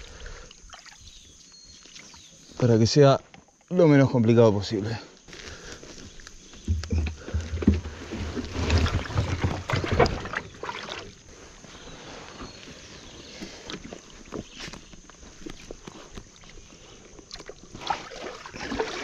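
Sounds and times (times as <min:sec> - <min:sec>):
water splashing and sloshing: 0:00.0 - 0:02.6, 0:06.4 - 0:19.0.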